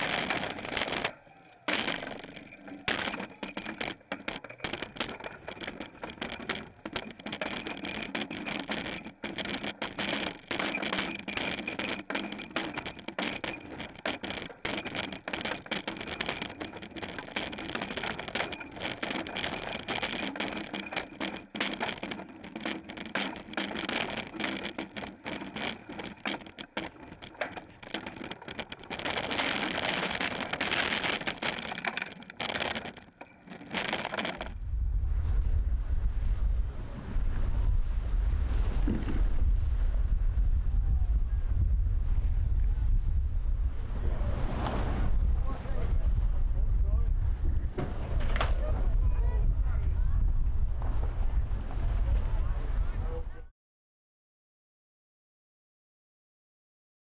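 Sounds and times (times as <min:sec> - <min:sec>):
rapid crackling clicks: 0:00.0 - 0:34.6.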